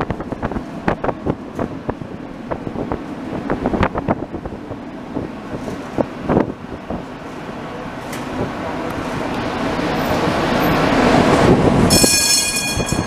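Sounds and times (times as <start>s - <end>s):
tram wheels rolling on rails: 0.0s - 13.0s.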